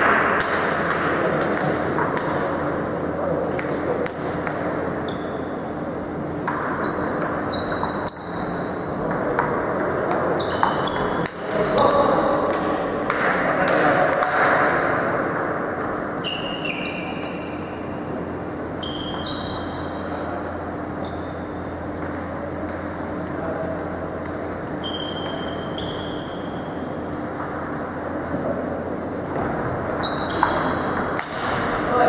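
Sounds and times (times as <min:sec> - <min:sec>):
steady low hum: 0:00.0 - 0:32.0
table tennis ball pinging: 0:06.4 - 0:14.6, 0:18.8 - 0:20.5, 0:21.1 - 0:28.4, 0:29.8 - 0:31.9.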